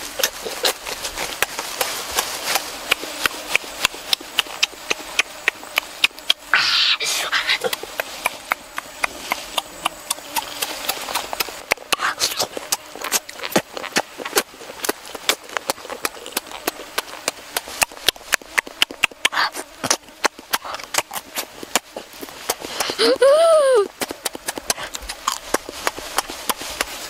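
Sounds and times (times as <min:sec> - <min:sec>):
wet chewing and lip-smacking: 0:00.0 - 0:06.5, 0:07.3 - 0:23.0, 0:23.9 - 0:27.0
sharp mouth clicks: 0:03.8 - 0:06.6, 0:07.2 - 0:21.9, 0:24.0 - 0:26.9.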